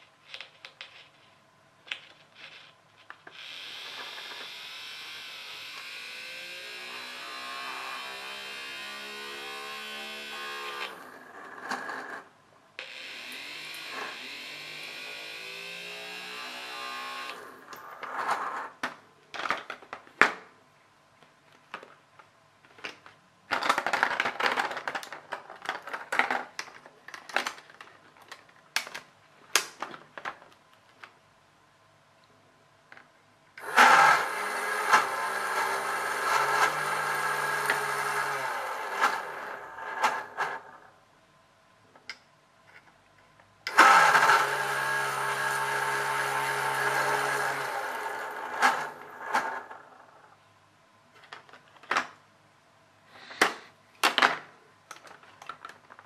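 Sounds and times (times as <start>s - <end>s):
toy motor whirring: 2.4s - 12.2s, 12.8s - 18.1s, 33.6s - 40.7s, 43.7s - 49.8s
plastic pieces clicking: 17.7s - 20.4s, 21.6s - 31.1s, 53.4s - 56.0s.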